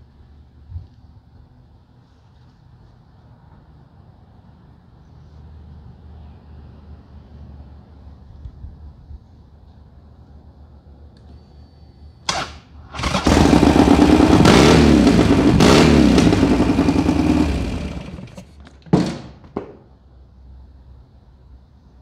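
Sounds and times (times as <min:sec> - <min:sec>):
motorcycle engine revving: 0:12.9 - 0:18.5.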